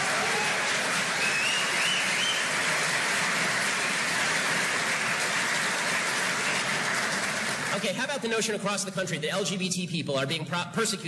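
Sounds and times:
audience applauding: 0.0s - 8.0s
whistle from crowd: 1.2s - 2.5s.

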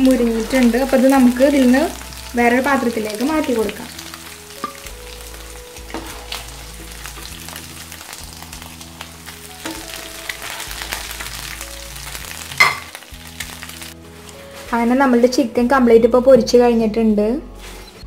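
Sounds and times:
chicken sizzling in oil: 0.0s - 14.8s.

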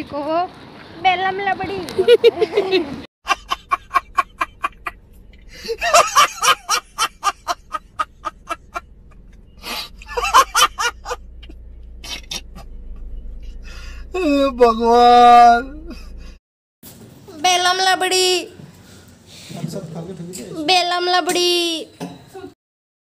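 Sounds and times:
man laughing hard: 2.1s - 5.0s, 5.6s - 8.8s, 10.0s - 11.2s
man breathing: 5.4s - 5.8s, 9.6s - 10.0s, 13.4s - 14.2s, 15.9s - 16.4s.

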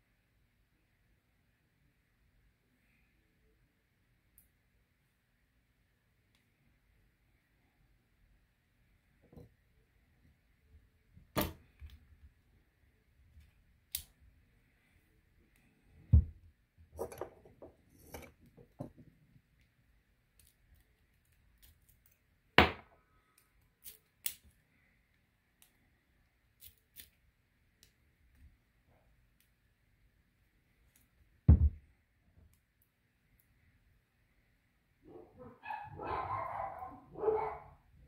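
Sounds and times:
dull knock: 31.5s - 31.8s.

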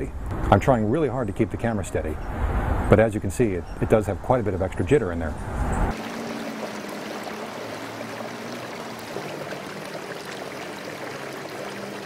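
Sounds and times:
fountain water trickling: 5.9s - 12.0s.

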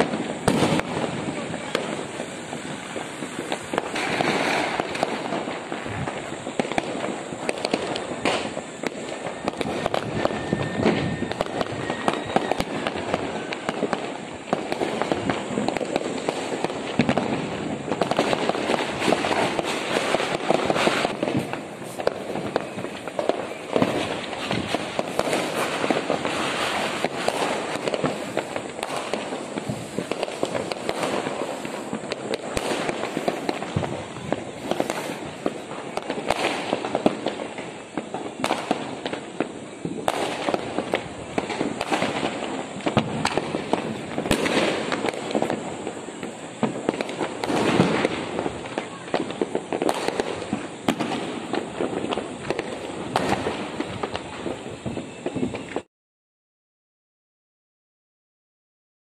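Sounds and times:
fireworks crackling and banging: 0.0s - 55.9s.

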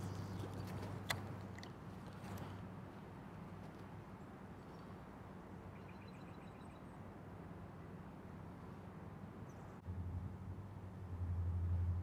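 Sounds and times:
low hum: 9.8s - 12.0s.

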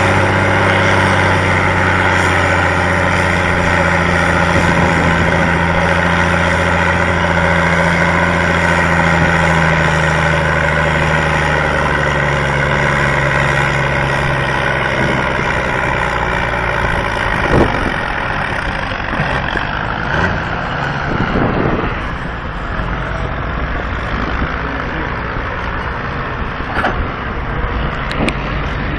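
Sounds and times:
tractor diesel engine under load: 0.0s - 28.9s.

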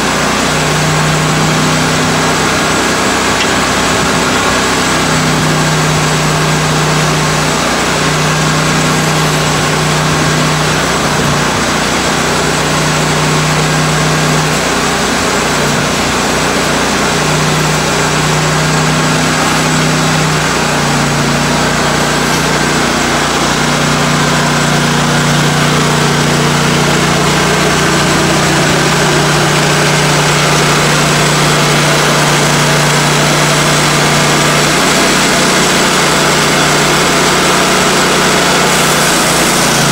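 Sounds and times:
band sawmill cutting log: 0.0s - 39.9s.

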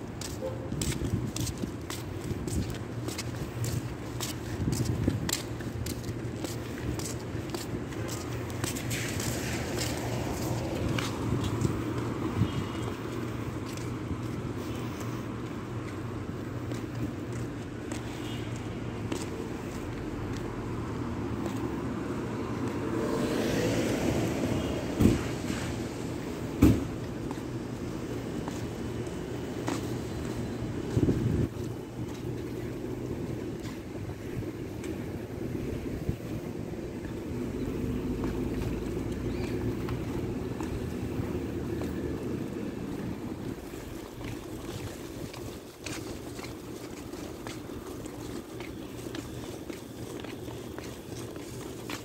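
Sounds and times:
low traffic rumble: 0.0s - 52.0s
street noise: 0.0s - 52.0s
wind on microphone: 0.5s - 5.9s, 30.7s - 31.8s.

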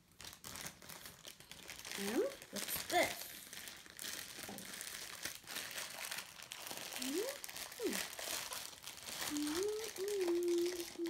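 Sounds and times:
plastic bag crinkling: 0.0s - 11.0s
child humming: 7.0s - 8.1s, 9.3s - 11.0s.

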